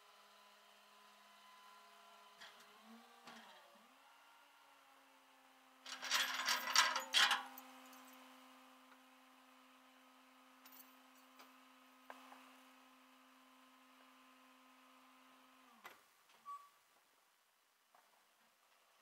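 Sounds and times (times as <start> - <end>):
strap and chain rattling on metal: 5.9 - 7.5.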